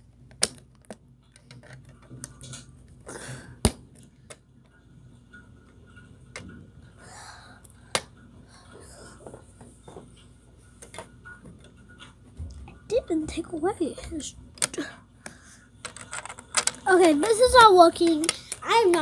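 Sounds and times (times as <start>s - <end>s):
plastic bricks clicking: 15.8s - 19.0s.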